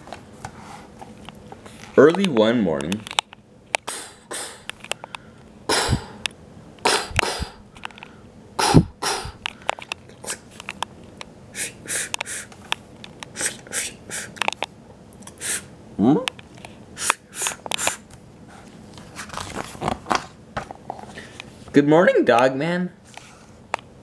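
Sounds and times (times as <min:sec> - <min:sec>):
person making mouth sound effects: 0:03.8 - 0:04.7, 0:05.7 - 0:06.2, 0:06.8 - 0:07.6, 0:08.6 - 0:09.4, 0:10.1 - 0:10.5, 0:11.6 - 0:12.5, 0:13.3 - 0:14.4
loud clanking noises: 0:06.8 - 0:07.6
short scratchy sounds: 0:08.6 - 0:09.4.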